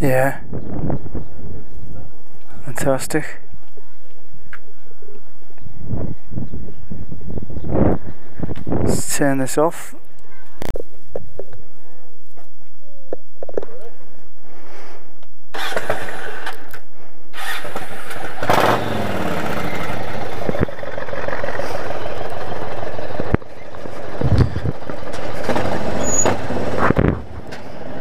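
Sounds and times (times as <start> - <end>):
motorcycle engine starting and running: 15.5 - 28.0.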